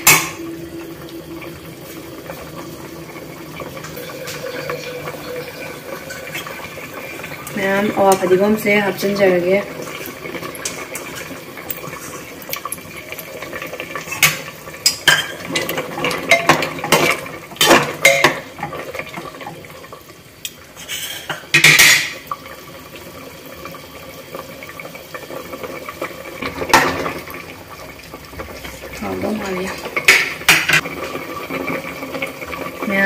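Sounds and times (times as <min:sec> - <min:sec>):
spatula knocking and scraping pot: 0:29.8 - 0:30.9.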